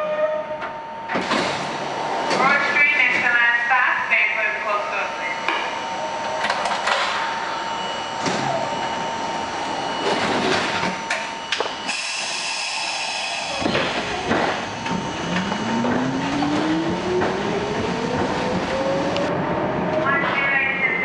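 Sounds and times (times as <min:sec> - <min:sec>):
subway car hum: 0:00.0 - 0:21.0
train motor whine: 0:05.0 - 0:19.3.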